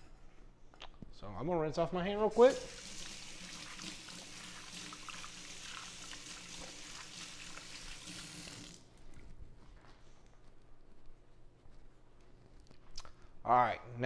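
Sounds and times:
tap water running: 0:02.4 - 0:08.9.

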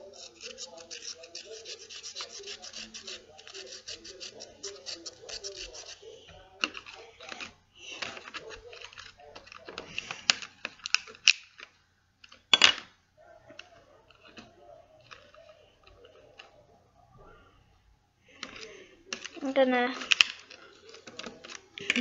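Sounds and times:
chalk pastels scraping in tray: 0:00.0 - 0:11.6.

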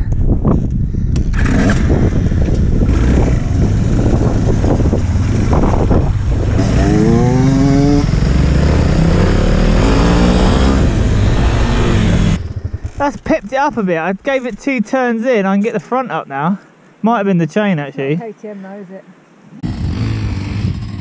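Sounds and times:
motorcycle engine accelerating: 0:01.2 - 0:13.4, 0:19.6 - 0:21.0
rushing noise: 0:01.3 - 0:13.2.

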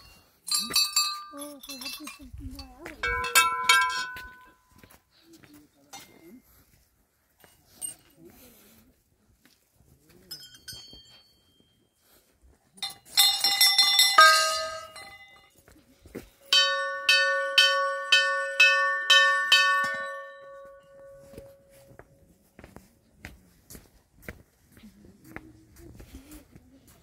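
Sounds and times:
small brass bells ringing: 0:00.0 - 0:04.9, 0:10.2 - 0:12.0, 0:12.8 - 0:22.0.

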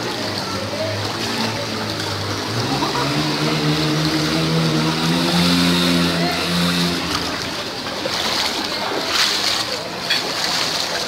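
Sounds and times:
floodwater rushing: 0:00.0 - 0:11.0
vehicle engine humming: 0:00.4 - 0:08.6.

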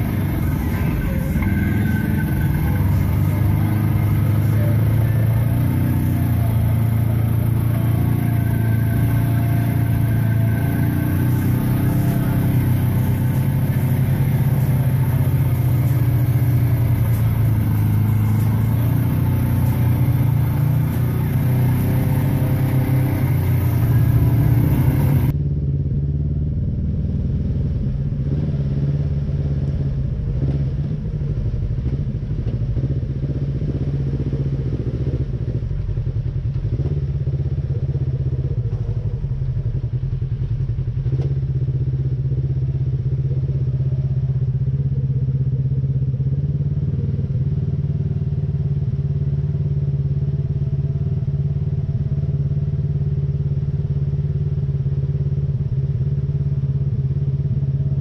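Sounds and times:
utility vehicle engine running: 0:00.0 - 0:58.0.

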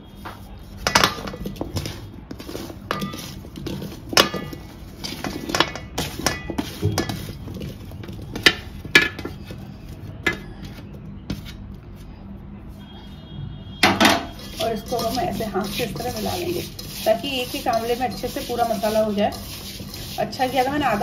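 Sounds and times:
steel plate clinking on metal pot: 0:04.2 - 0:07.3.

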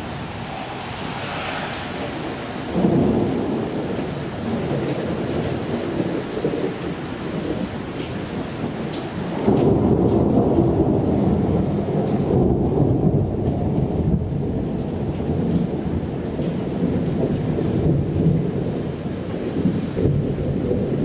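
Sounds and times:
thunder rumbling: 0:00.0 - 0:14.6
rain falling: 0:00.0 - 0:21.0.

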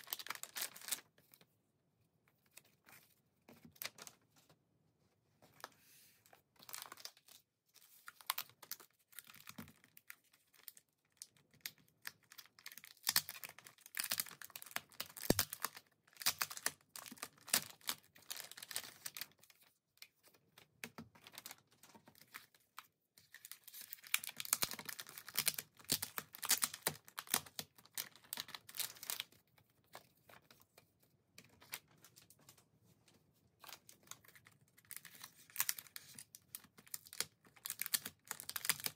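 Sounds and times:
plastic pouches crinkling and tearing: 0:00.0 - 0:01.1, 0:08.0 - 0:19.4, 0:23.3 - 0:29.4, 0:33.6 - 0:38.9.

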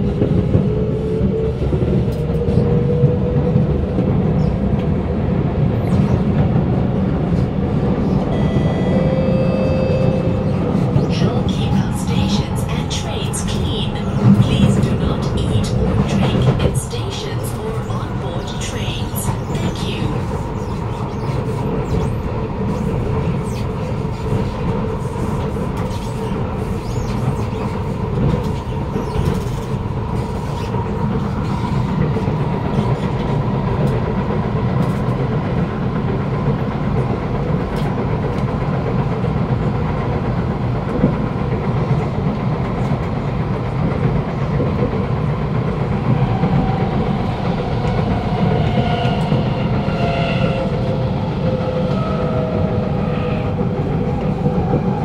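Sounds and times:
wheels rumbling on rails: 0:00.0 - 0:55.0
train motor hum: 0:05.8 - 0:24.1.

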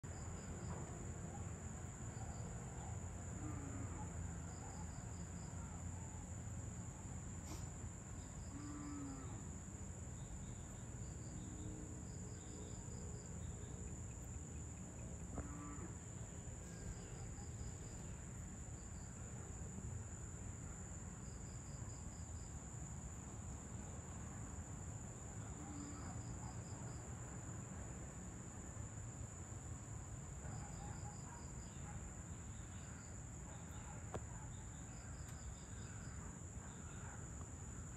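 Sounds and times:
cricket chirps: 0:00.0 - 0:37.9
crickets trilling: 0:01.7 - 0:37.9.

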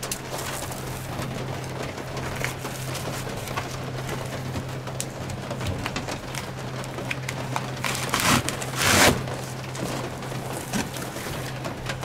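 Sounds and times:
foil foam insulation crinkling: 0:00.0 - 0:12.0.

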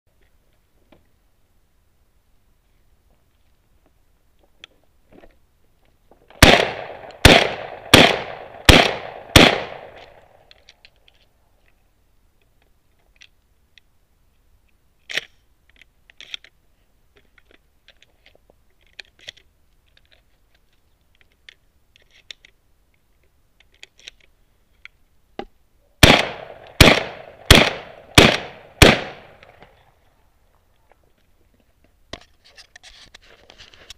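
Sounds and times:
shotgun shots: 0:06.3 - 0:10.4, 0:26.0 - 0:29.6
shotgun action cycling: 0:06.4 - 0:10.2, 0:26.0 - 0:29.6.

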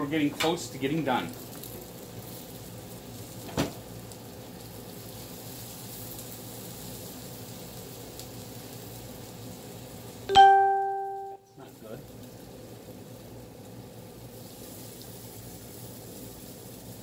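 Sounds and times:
chicken sizzling on a grill: 0:00.0 - 0:10.7, 0:11.6 - 0:17.0.

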